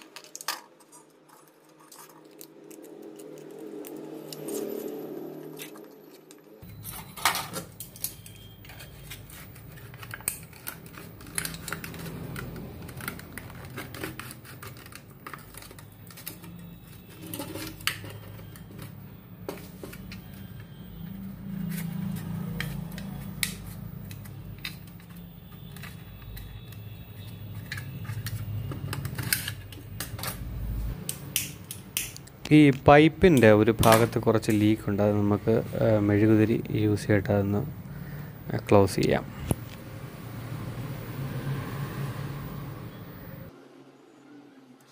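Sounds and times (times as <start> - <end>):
aluminium foil crinkling: 0.0 - 19.1.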